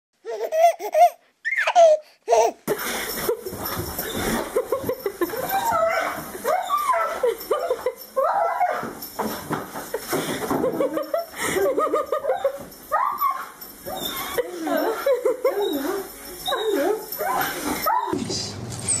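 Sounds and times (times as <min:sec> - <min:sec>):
dog whining excitedly: 0:05.2 - 0:09.1, 0:12.2 - 0:18.2.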